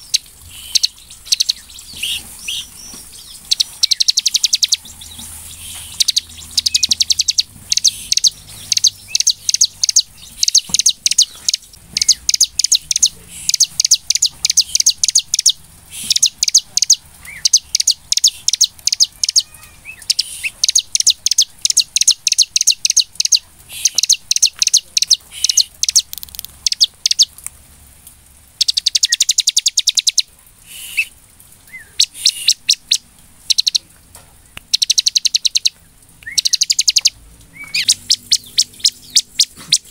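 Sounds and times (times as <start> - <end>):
bird singing fast trills: 0.0 - 27.3, 28.6 - 31.1, 31.7 - 33.8, 34.7 - 39.9.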